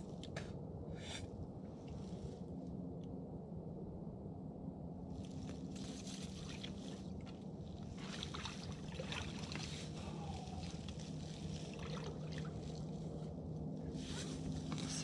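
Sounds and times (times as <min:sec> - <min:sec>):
rustling clothing and dry grass: 0:00.0 - 0:02.7, 0:05.1 - 0:15.0
water lapping against boat: 0:06.3 - 0:13.3.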